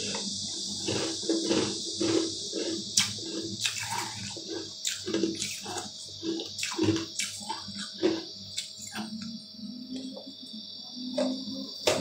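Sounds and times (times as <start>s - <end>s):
chewing with wet clicks: 0.0s - 9.4s
faint steady hum: 0.0s - 12.0s.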